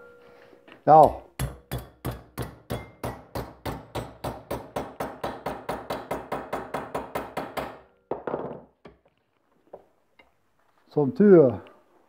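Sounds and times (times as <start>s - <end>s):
hammer striking metal: 1.0s - 8.0s.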